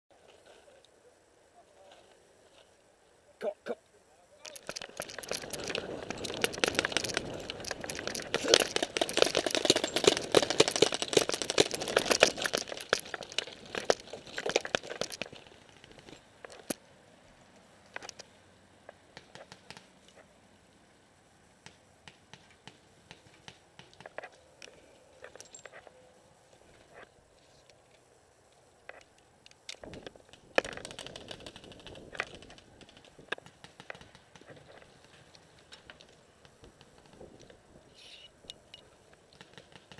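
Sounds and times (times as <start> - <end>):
gear rustling and rattling: 4.4 - 16.8
running footsteps: 4.5 - 16.2.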